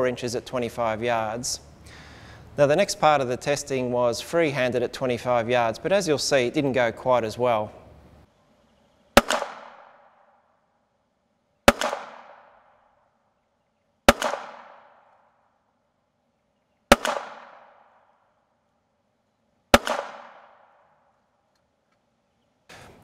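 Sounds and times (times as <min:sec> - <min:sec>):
pistol shots with echo: 0:09.2 - 0:10.4, 0:11.6 - 0:12.9, 0:14.0 - 0:15.4, 0:16.9 - 0:18.2, 0:19.7 - 0:21.1.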